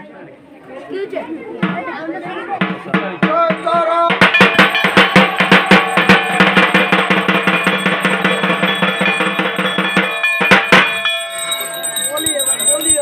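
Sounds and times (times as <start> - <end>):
drums in fast roll: 1.6 - 13.0
high metallic ringing: 3.5 - 13.0.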